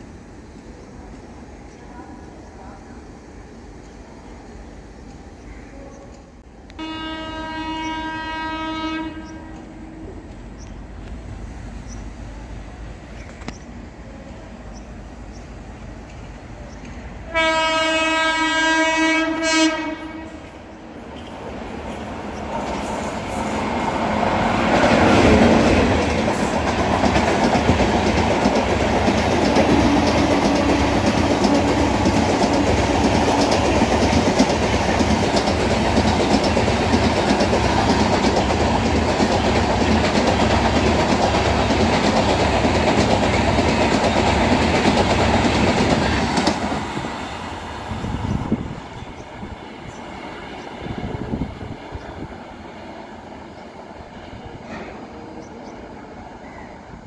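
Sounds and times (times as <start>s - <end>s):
train wheels clattering: 21.1s - 50.9s.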